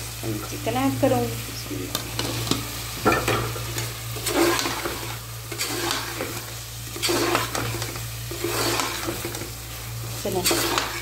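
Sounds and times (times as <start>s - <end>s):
frying sizzle: 0.0s - 11.0s
metal spoon scraping pot: 4.2s - 6.4s, 7.0s - 9.4s, 10.4s - 11.0s.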